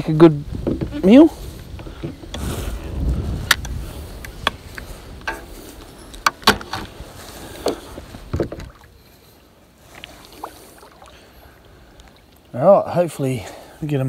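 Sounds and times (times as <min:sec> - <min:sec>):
clunks on kayak hull: 0:00.5 - 0:01.1, 0:06.2 - 0:07.0, 0:07.6 - 0:08.9
fish and tackle knocking: 0:07.6 - 0:08.8.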